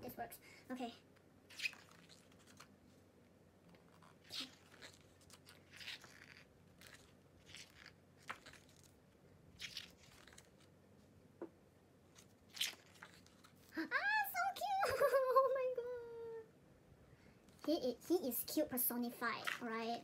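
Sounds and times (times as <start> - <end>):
book pages turning: 1.5 - 2.8, 3.6 - 9.0, 9.6 - 10.7, 12.1 - 13.8.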